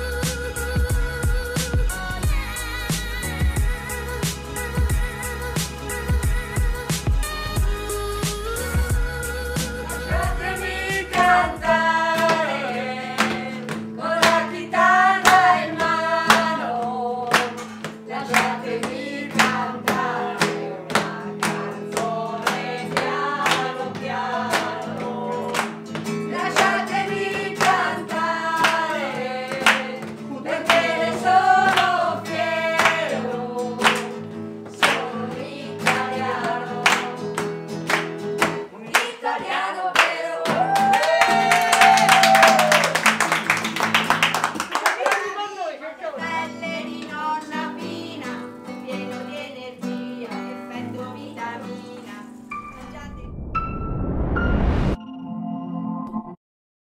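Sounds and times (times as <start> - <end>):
person singing: 0.0 - 34.2
acoustic guitar strumming: 8.8 - 38.7.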